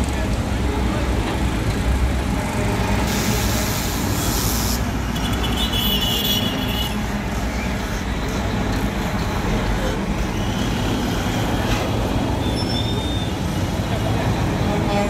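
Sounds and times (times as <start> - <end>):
heavy trucks passing: 0.0 - 15.0
brief air hiss: 3.1 - 4.9
high squeal: 12.3 - 13.4.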